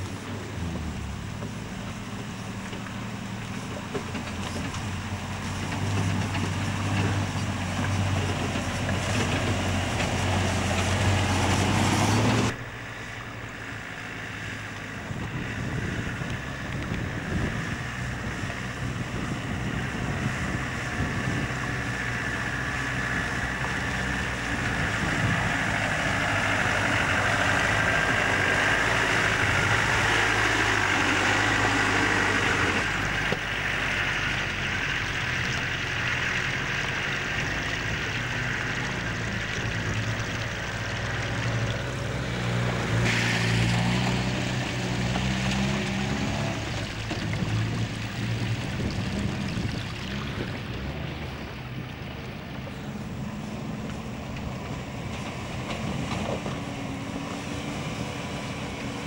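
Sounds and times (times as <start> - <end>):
off-road vehicle engine drone: 0.0 - 59.0.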